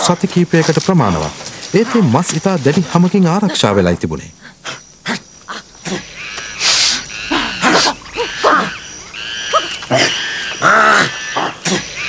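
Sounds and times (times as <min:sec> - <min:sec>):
ape-like hooting cries: 0:04.5 - 0:12.0.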